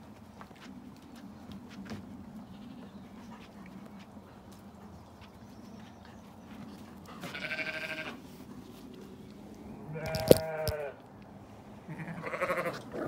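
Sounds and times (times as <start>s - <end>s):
sheep bleating: 7.2s - 8.2s, 9.9s - 11.0s, 11.9s - 12.9s.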